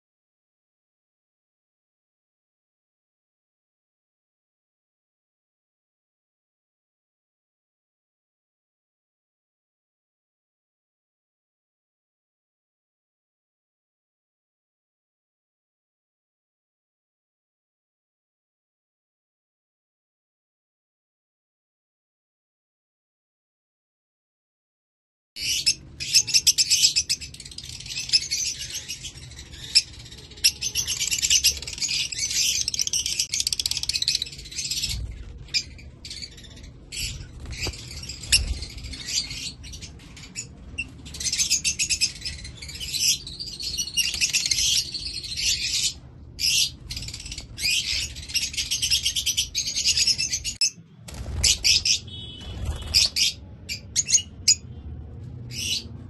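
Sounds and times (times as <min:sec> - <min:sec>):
parrots chirping and chattering: 0:25.4 - 0:50.8, 0:51.4 - 0:54.6.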